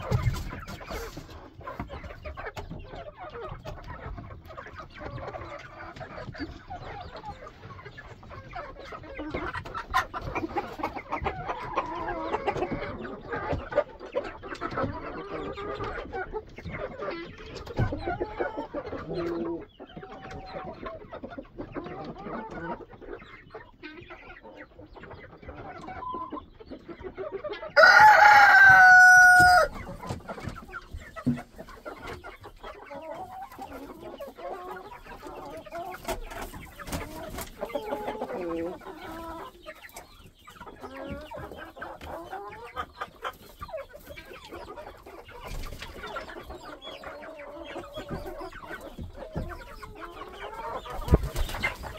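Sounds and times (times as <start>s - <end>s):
chickens clucking: 0.0s - 51.9s
rooster crowing: 27.8s - 29.7s.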